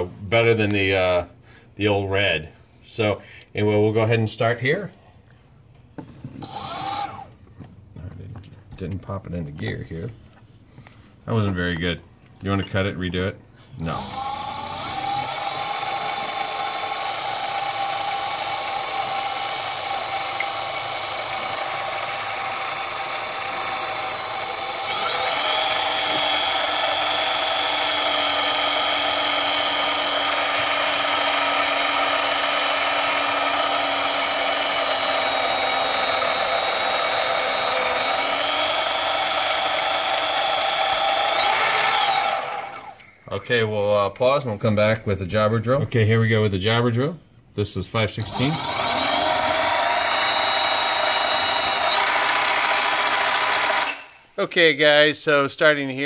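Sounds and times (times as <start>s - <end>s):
drill boring into brass: 6.4s - 7.3s, 13.8s - 43.1s, 48.2s - 54.4s
lathe motor whining: 6.4s - 7.3s, 13.8s - 43.1s, 48.2s - 54.3s.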